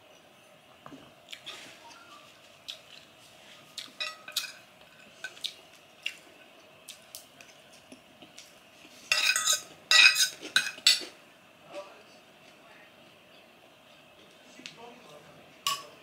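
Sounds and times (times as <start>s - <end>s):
cutlery clinking on ceramic plate: 3.9s - 5.5s, 9.1s - 11.2s, 15.6s - 16.0s.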